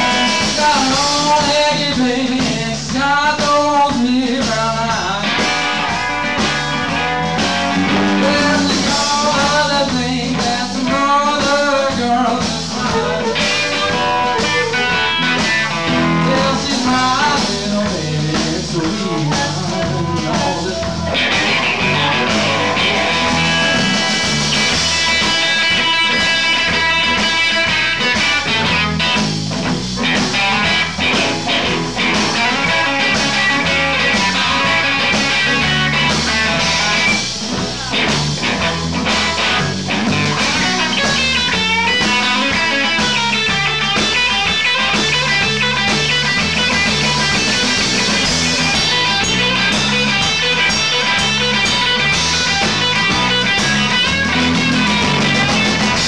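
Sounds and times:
drum kit: 0.0s - 56.0s
electric bass: 0.0s - 56.0s
electric guitar: 0.0s - 56.0s
harmonica: 6.9s - 9.1s, 12.7s - 16.2s, 40.5s - 56.0s.

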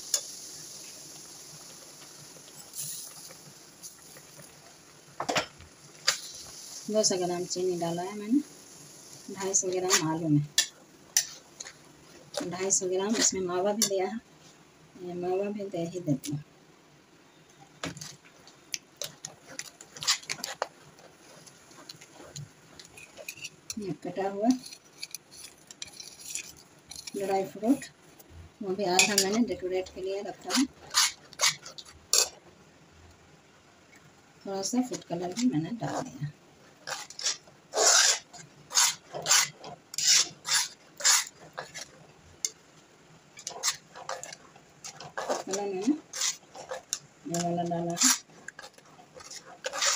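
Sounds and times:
spatula scraping a pan: 9.3s - 14.1s, 19.0s - 27.9s, 28.8s - 32.4s, 34.7s - 42.6s, 43.3s - 49.9s.

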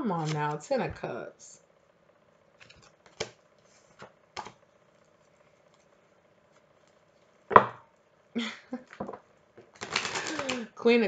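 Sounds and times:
cards being shuffled: 0.0s - 0.6s, 2.6s - 4.6s, 9.6s - 10.6s.

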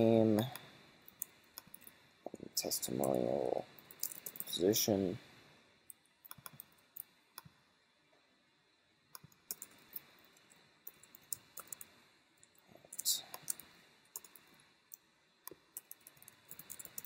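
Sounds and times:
keyboard typing clicks: 3.8s - 4.5s, 6.2s - 7.5s, 9.1s - 10.1s, 10.8s - 11.9s, 13.3s - 17.0s.

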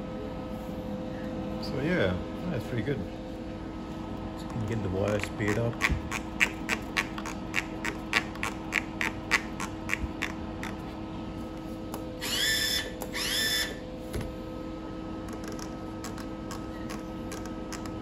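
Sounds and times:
short rising whines: 12.2s - 14.0s.

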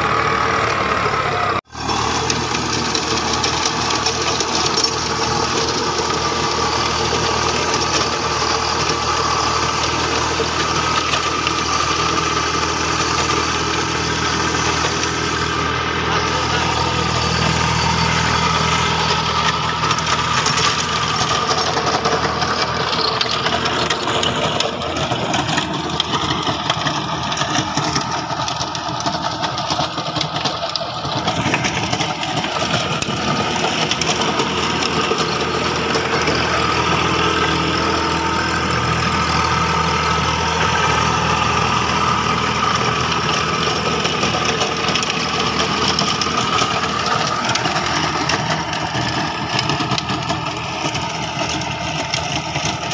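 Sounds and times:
tractor diesel engine running: 0.0s - 52.9s.

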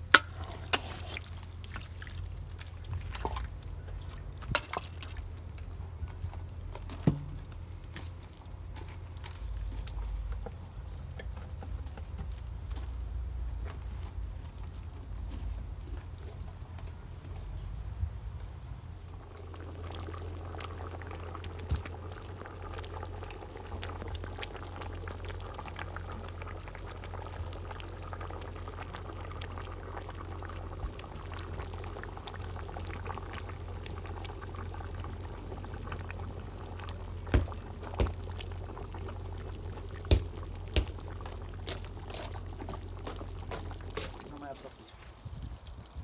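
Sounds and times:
stew bubbling and popping: 0.0s - 46.0s.

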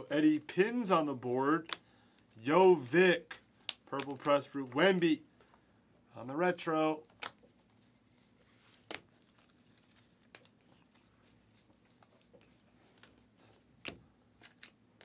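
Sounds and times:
trading cards clicking and snapping: 1.6s - 1.9s, 3.3s - 4.8s, 7.1s - 7.5s.

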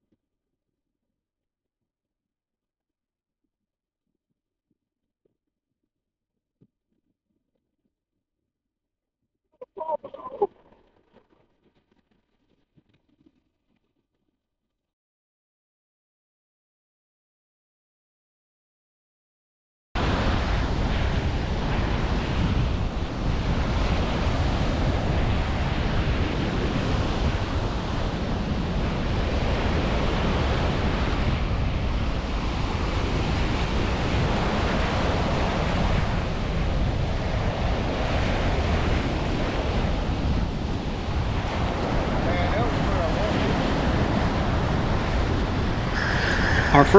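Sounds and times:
waves breaking on beach: 20.0s - 46.9s
wind rumbling on microphone: 20.0s - 46.9s.

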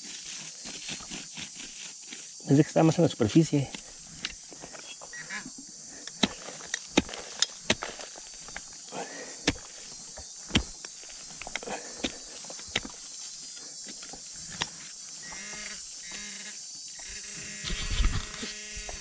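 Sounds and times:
digging tool striking soil and stones: 6.0s - 13.2s.

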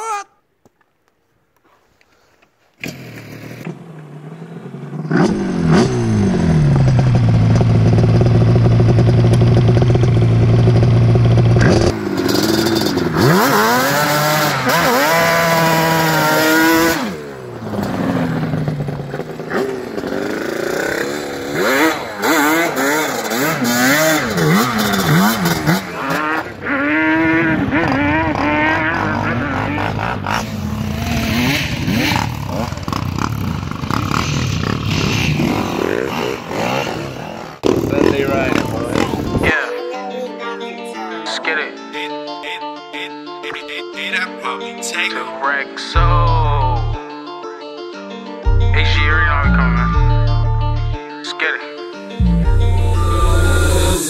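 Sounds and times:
two-stroke engine revving: 2.8s - 39.6s, 52.2s - 54.0s.

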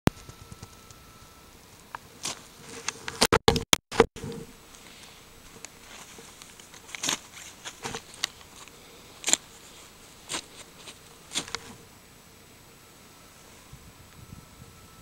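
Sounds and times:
straps rustling against camera: 4.8s - 11.8s.

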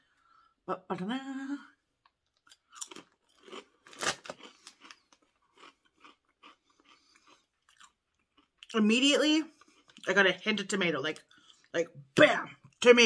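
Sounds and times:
crunching potato chip: 2.3s - 8.8s.

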